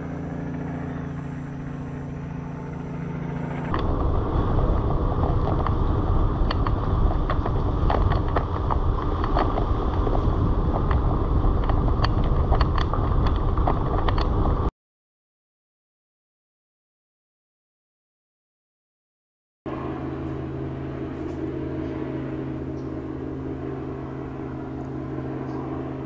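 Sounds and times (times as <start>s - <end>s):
car rolling on gravel: 3.7s - 14.7s.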